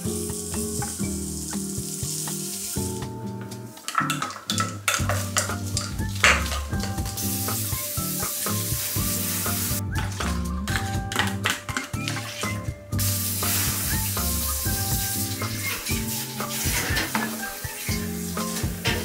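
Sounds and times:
background music: 0.0s - 19.0s
chili flakes pouring hiss: 3.8s - 10.2s, 12.1s - 19.0s.

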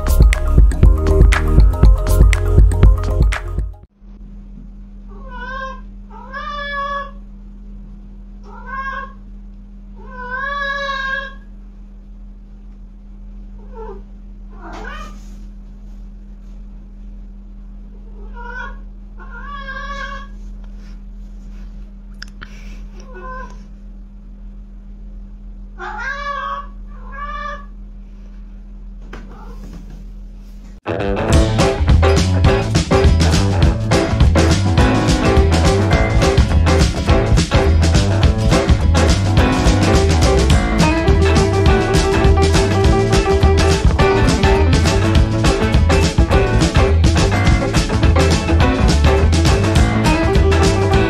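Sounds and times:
steady low hum: 0.0s - 51.0s
cat meowing: 5.1s - 7.2s, 8.4s - 9.2s, 10.0s - 11.4s, 13.6s - 15.2s, 18.0s - 20.3s, 25.8s - 27.8s.

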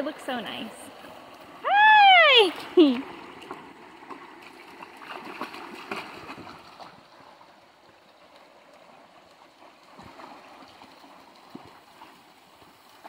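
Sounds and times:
dog feet splashing in water: 0.0s - 13.0s
rocky stream running: 0.0s - 13.0s.

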